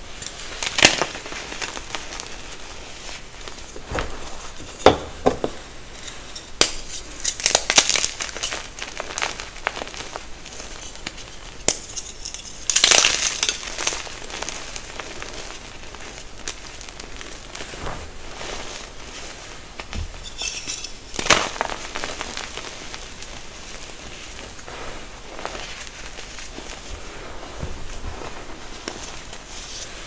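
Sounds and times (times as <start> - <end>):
chalk crunching and crumbling: 0.0 - 30.0
powder rustling: 0.0 - 30.0.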